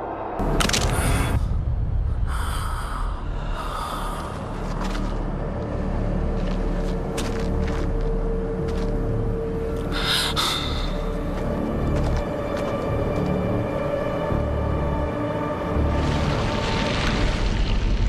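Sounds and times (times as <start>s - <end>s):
low rumble: 0.0s - 13.6s.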